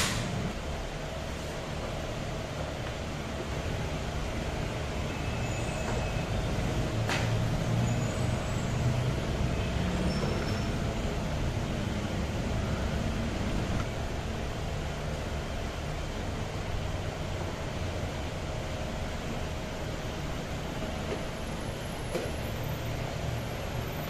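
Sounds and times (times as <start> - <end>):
sharp click: 0.0 - 0.4
workshop background rumble: 0.0 - 24.0.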